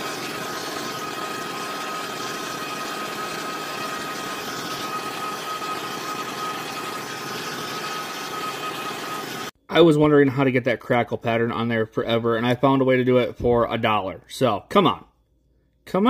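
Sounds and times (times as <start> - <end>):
hair dryer running: 0.0 - 9.6.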